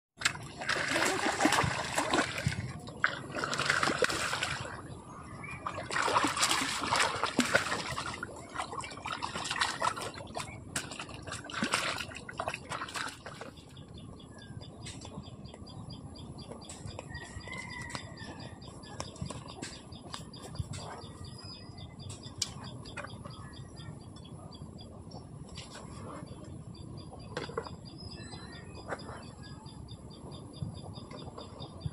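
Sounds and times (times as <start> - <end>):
water splashing and sloshing: 0.2 - 13.8.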